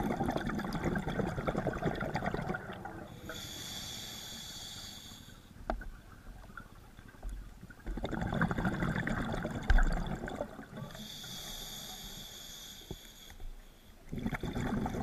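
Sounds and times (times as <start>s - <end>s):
underwater exhale bubbles gurgling: 0.0s - 3.7s, 5.9s - 11.9s, 14.0s - 15.0s
regulator inhale hiss: 3.1s - 5.6s, 10.9s - 14.0s.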